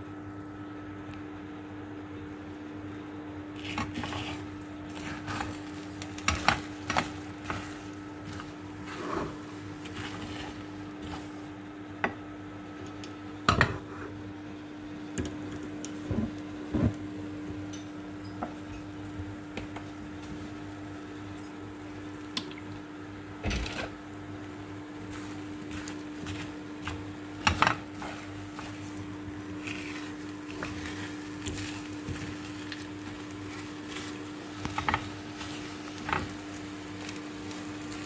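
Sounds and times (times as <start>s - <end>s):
steady low hum: 0.0s - 38.0s
spatula scraping frying pan: 3.6s - 11.4s, 25.1s - 36.5s
egg sizzling: 3.6s - 13.2s, 18.0s - 38.0s.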